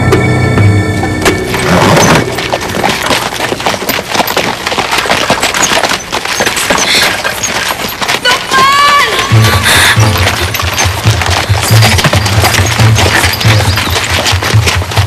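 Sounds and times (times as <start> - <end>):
music: 0.0 - 2.6, 9.2 - 15.0.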